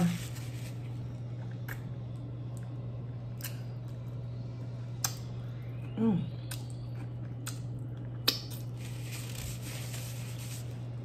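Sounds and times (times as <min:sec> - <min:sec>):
steady low hum: 0:00.0 - 0:11.0
chewing and wet mouth clicks: 0:06.4 - 0:08.6.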